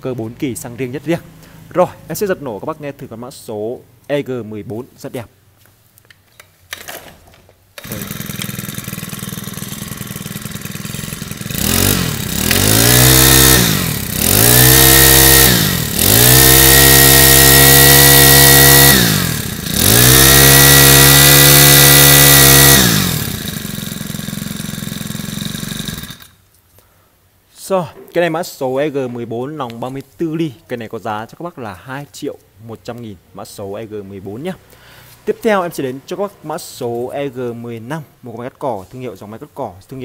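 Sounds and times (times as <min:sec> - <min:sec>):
brush cutter engine idling and revving: 0:07.8 - 0:26.4
brush cutter pull-start: 0:07.8 - 0:26.4.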